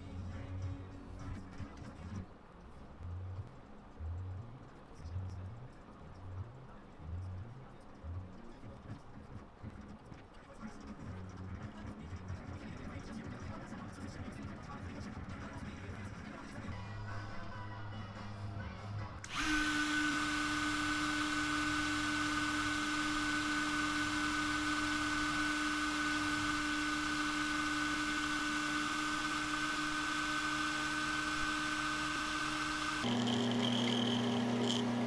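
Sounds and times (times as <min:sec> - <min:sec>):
low-pitched machine hum: 0:00.0 - 0:10.0, 0:19.2 - 0:35.0
rotary tool grinding wood: 0:19.2 - 0:35.0.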